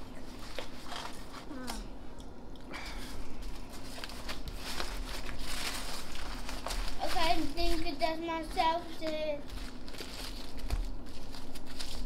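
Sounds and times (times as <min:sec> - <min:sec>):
foil wrapper crinkling: 0:03.3 - 0:12.0.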